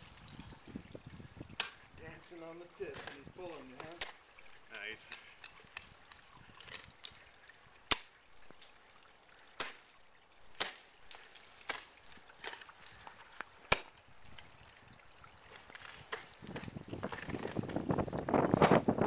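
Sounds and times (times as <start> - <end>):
ice axe striking ice: 2.9 - 4.2, 7.9 - 8.1, 9.5 - 12.8, 13.6 - 14.0, 15.5 - 19.0.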